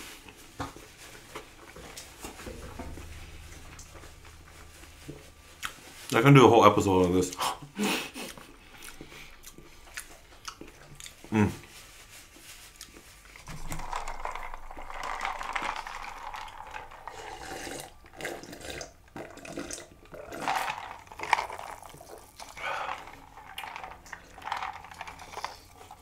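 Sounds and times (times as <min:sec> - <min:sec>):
person slurping liquid: 0:13.5 - 0:26.0.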